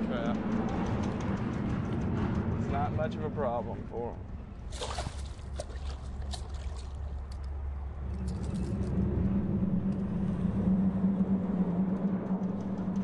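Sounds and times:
fish splashing at surface: 4.7s - 7.2s.

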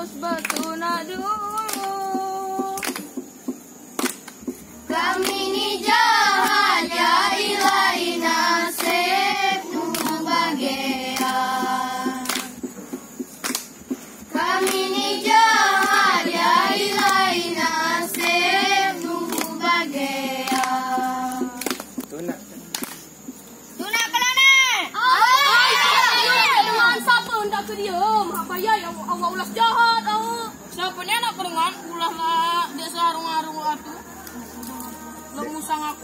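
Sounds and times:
hand claps: 0.2s - 23.4s
children singing: 4.9s - 12.6s, 14.3s - 21.8s, 25.0s - 27.3s.

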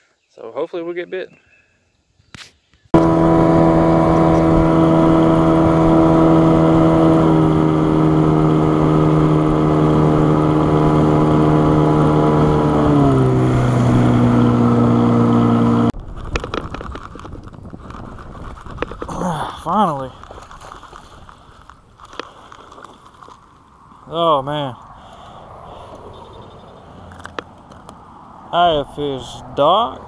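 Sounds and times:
outboard motor running: 3.0s - 16.9s.

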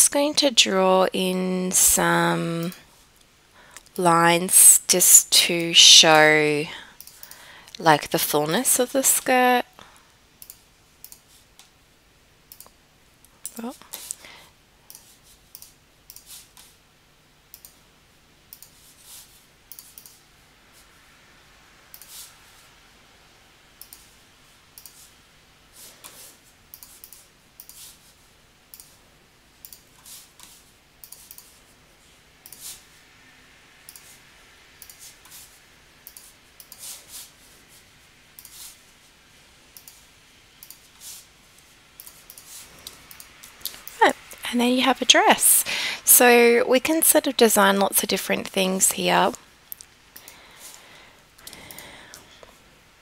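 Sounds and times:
faint steady hum: 0.0s - 53.0s
computer mouse clicks: 7.0s - 7.4s, 10.4s - 11.7s, 12.5s - 14.2s, 14.9s - 16.8s, 17.5s - 17.8s, 18.5s - 18.8s, 19.7s - 20.2s, 21.9s - 22.2s, 23.8s - 24.2s, 24.8s - 25.1s, 26.0s - 28.1s, 28.7s - 29.0s, 29.6s - 31.6s, 32.4s - 32.8s, 33.9s - 34.2s, 34.8s - 35.4s, 36.0s - 37.0s, 38.4s - 38.8s, 39.7s - 40.0s, 40.6s - 41.0s, 41.6s - 44.0s, 49.7s - 50.4s, 51.4s - 52.2s.

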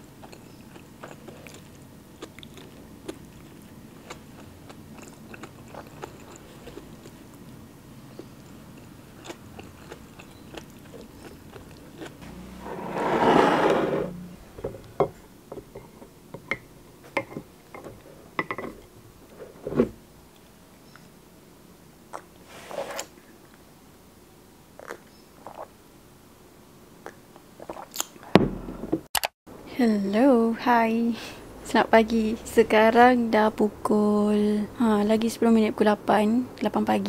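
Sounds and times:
chewing with small clicks: 0.1s - 12.2s, 24.8s - 25.7s.

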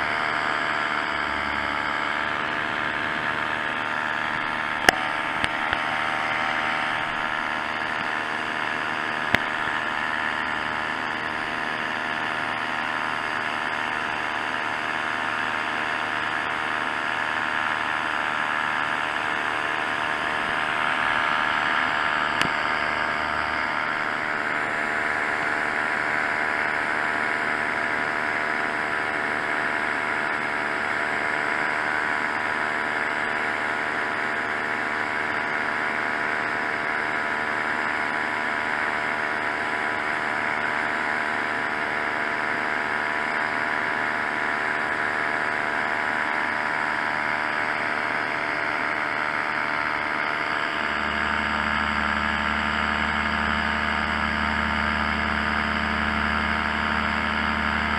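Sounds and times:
paramotor engine and propeller: 0.0s - 57.9s
deep low hum: 50.6s - 57.9s.

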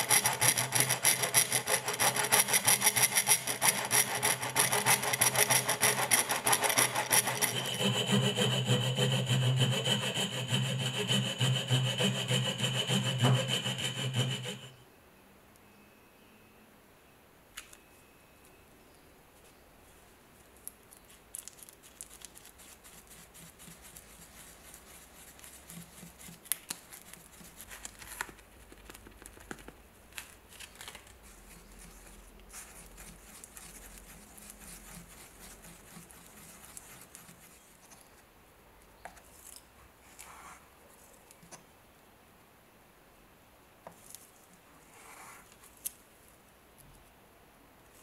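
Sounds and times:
crackling and scraping on paper: 0.0s - 14.6s, 20.5s - 38.2s.

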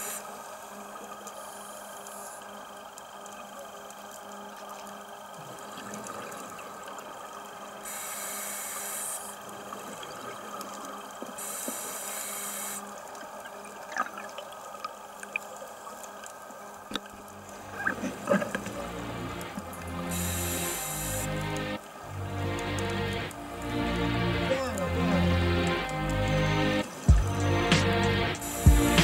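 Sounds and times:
faint clicks: 0.0s - 21.9s
underwater hiss and hum: 0.0s - 29.0s
regulator exhaling bubbles: 5.3s - 7.2s.

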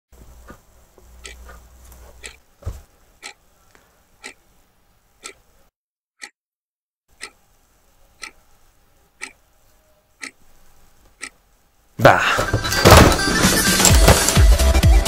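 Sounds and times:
clock ticking: 1.2s - 1.4s, 2.2s - 2.4s, 3.2s - 3.4s, 4.2s - 4.4s, 5.2s - 5.5s, 6.2s - 6.4s, 7.1s - 8.5s, 9.2s - 9.4s, 10.2s - 10.4s, 11.1s - 11.4s.

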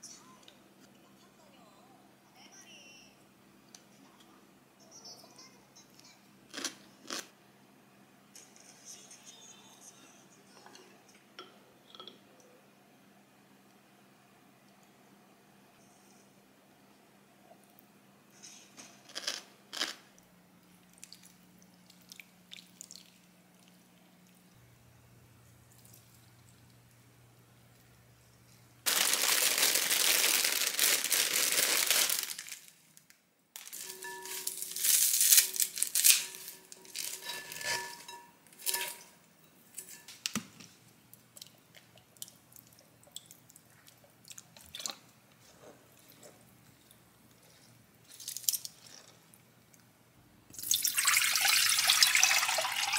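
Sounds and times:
plastic bag crinkling: 28.8s - 39.0s
stems rustling: 28.9s - 39.0s.

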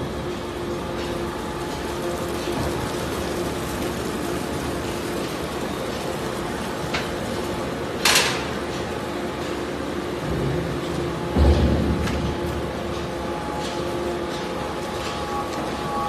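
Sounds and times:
conveyor machine hum: 0.0s - 16.0s.

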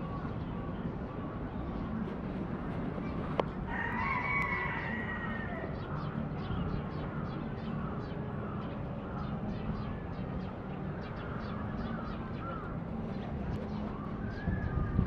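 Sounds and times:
rooster crowing: 3.7s - 5.7s.

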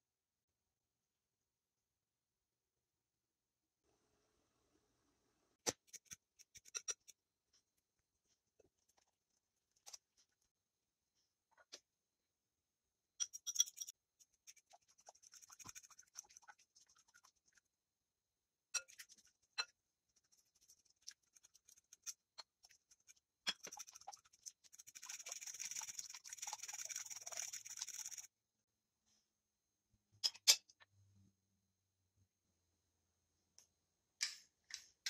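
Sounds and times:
fork beating eggs in glass bowl: 5.7s - 7.2s, 13.2s - 17.8s, 18.7s - 28.3s
fork scraping ceramic and glass: 13.2s - 14.0s.

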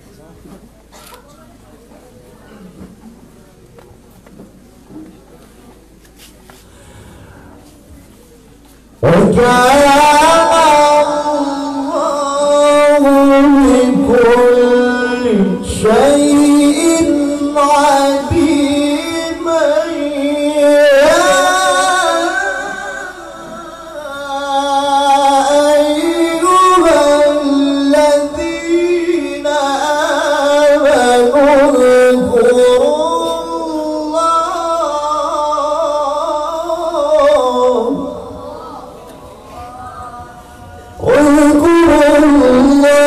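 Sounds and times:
man reciting melodically: 8.9s - 43.0s.

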